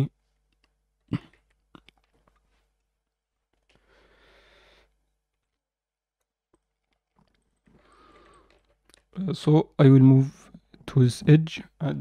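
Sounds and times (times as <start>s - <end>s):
soft breath: 3.6s - 5.2s, 7.6s - 8.8s.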